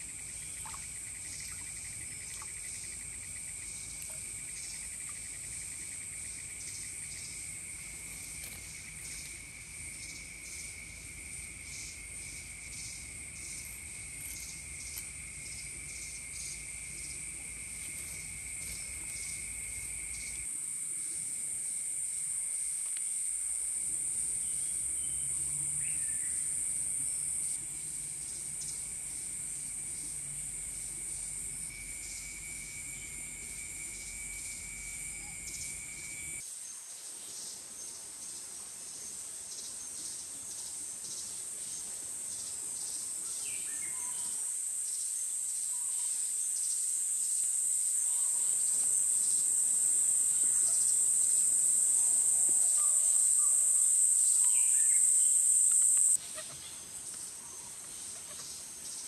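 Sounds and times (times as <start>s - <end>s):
insects trilling: 0.0s - 36.4s, 37.4s - 59.0s
lower steady tone: 27.6s - 36.4s.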